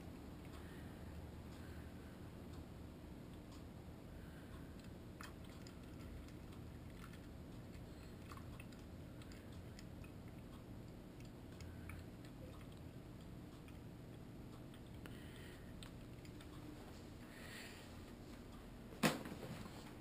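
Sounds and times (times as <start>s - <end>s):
cat lapping water: 4.7s - 16.6s.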